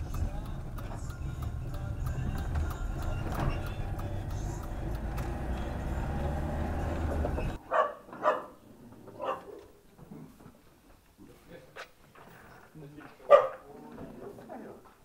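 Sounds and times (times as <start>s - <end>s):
car engine and tyres rumble: 0.0s - 7.6s
dog barking: 7.6s - 8.6s, 9.2s - 9.7s, 13.2s - 14.4s.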